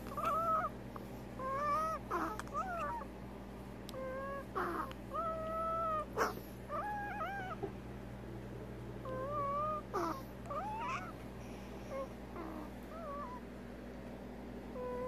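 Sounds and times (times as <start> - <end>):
prairie dog whistling wheezes: 9.1 - 11.1.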